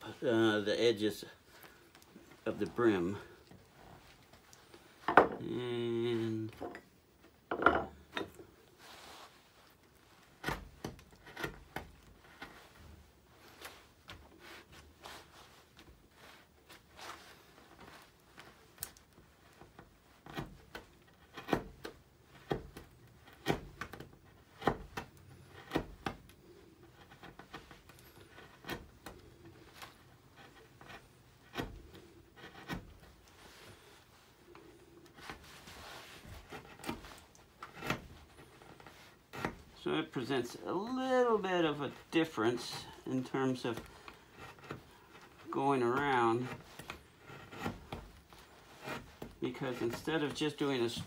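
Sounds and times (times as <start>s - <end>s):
gouge cutting wood: 46.4s - 50.4s.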